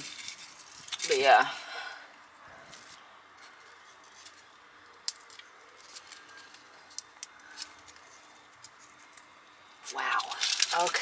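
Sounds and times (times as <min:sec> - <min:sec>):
dry leaves snapping: 0:09.8 - 0:11.0.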